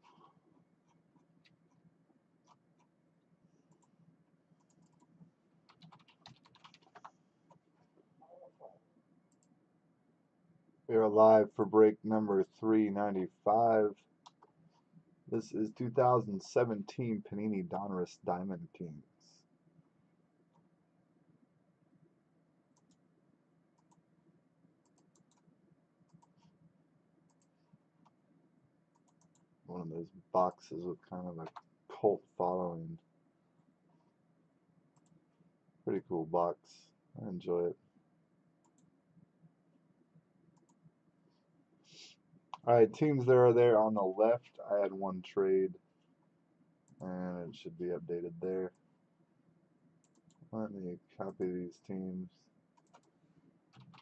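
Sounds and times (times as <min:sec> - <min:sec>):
faint keyboard typing: 0:00.0 - 0:09.6, 0:13.9 - 0:15.1, 0:21.9 - 0:28.2, 0:28.9 - 0:34.2, 0:34.8 - 0:35.3, 0:38.6 - 0:43.0, 0:50.0 - 0:50.6, 0:52.7 - 0:54.0
low steady hum: 0:00.0 - 0:54.0
computer mouse clicks: 0:03.7 - 0:04.0, 0:04.6 - 0:07.6, 0:14.2 - 0:14.8, 0:22.8 - 0:23.0, 0:23.8 - 0:24.0, 0:24.8 - 0:25.5, 0:26.1 - 0:26.6, 0:27.3 - 0:28.2, 0:28.9 - 0:29.5, 0:35.0 - 0:35.2, 0:38.6 - 0:38.9, 0:40.5 - 0:40.8, 0:50.0 - 0:50.5, 0:52.8 - 0:54.0.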